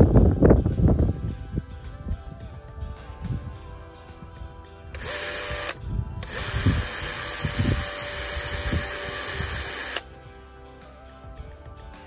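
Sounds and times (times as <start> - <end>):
film camera whirring: 5.0 - 10.0.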